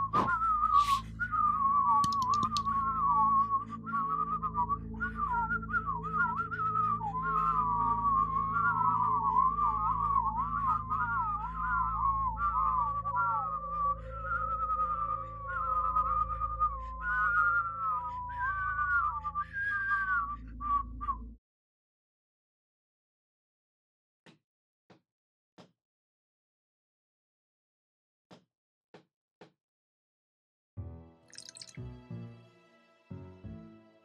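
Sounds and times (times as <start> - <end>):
whistled melody: 0.0 - 21.4, 31.3 - 32.4.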